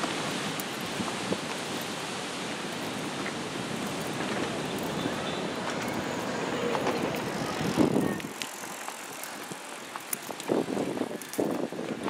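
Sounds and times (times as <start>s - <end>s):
bicycle riding past on boardwalk: 0.0s - 12.0s
wind rumbling on microphone: 0.0s - 12.0s.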